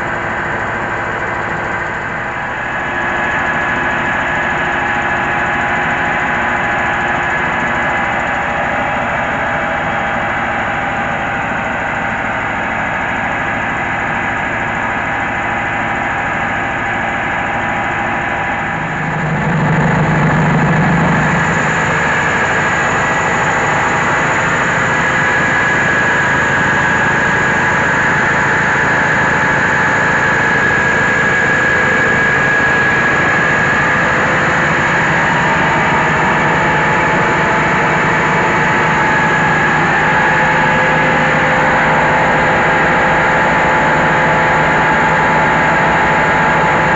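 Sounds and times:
diesel engine running: 0.0s - 46.9s
hulling machinery: 16.4s - 46.9s.

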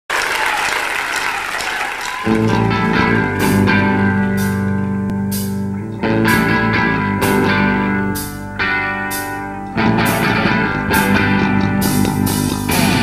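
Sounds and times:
audience applause: 0.0s - 4.4s
electric guitar chords: 2.2s - 13.0s.

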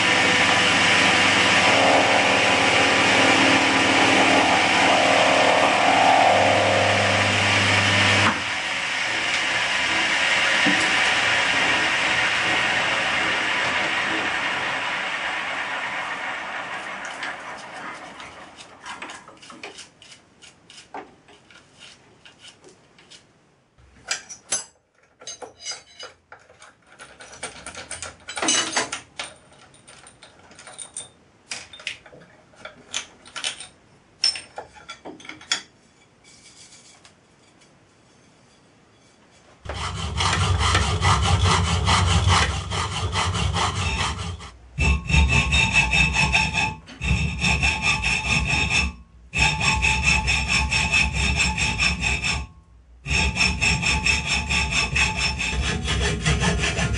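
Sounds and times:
metal parts clinking and scraping: 24.1s - 37.0s
hacksaw cutting metal plate: 39.6s - 56.9s.

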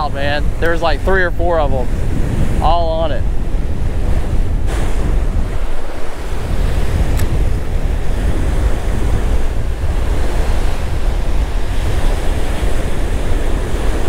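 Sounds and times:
waves breaking: 0.0s - 14.0s
wind buffeting microphone: 0.0s - 14.0s
sharp click: 7.1s - 7.4s.

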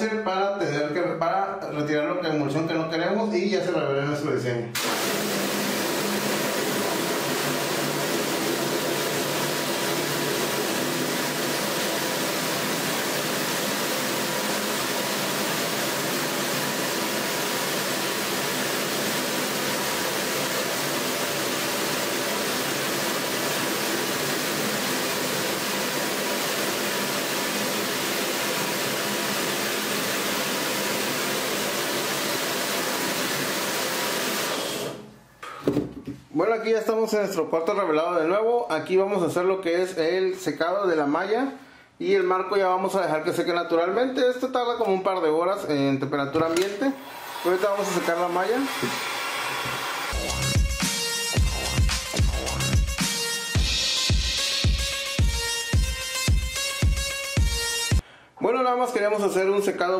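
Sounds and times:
pressure washer spraying water: 4.8s - 35.0s, 47.0s - 51.0s.

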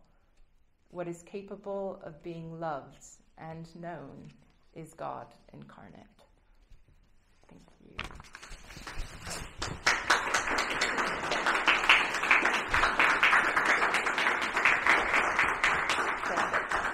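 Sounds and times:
audience applauding: 8.5s - 16.9s.

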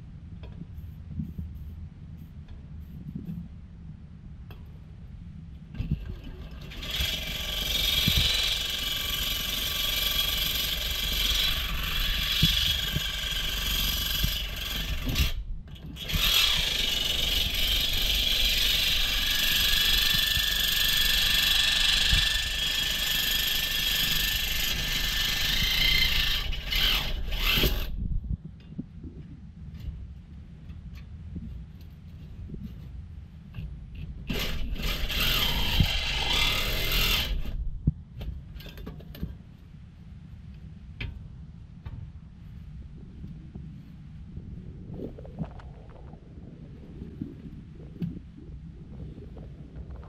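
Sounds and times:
reciprocating saw cutting metal: 6.3s - 15.4s, 16.0s - 28.0s, 34.3s - 37.6s.

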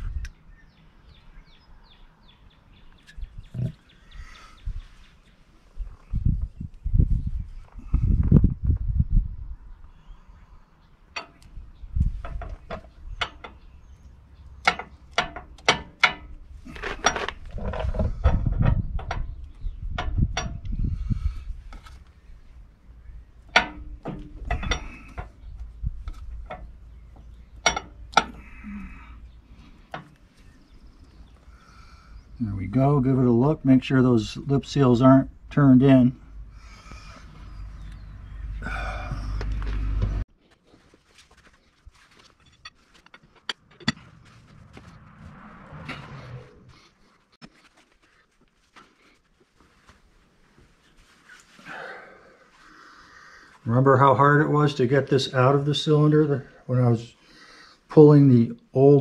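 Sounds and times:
light metallic clicks and knocks: 11.1s - 13.7s, 14.6s - 19.3s, 23.4s - 28.5s
metallic clinks and taps: 27.6s - 28.4s
low rubbing noise: 44.0s - 48.0s.

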